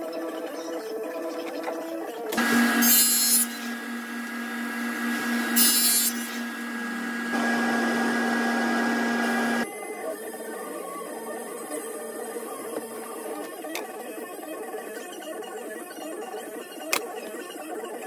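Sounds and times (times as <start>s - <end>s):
saw blade cutting board: 2.4s - 9.6s
table saw motor running: 2.4s - 9.7s.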